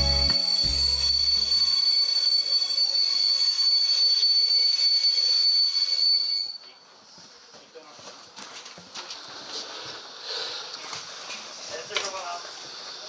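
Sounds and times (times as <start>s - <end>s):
train wheels squealing: 0.3s - 6.8s.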